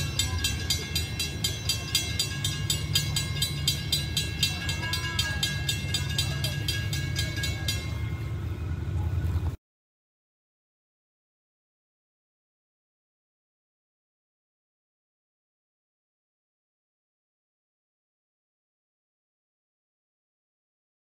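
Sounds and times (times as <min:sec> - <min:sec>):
fast ringing ticks: 0:00.0 - 0:08.5
diesel train rumbling: 0:00.0 - 0:09.6.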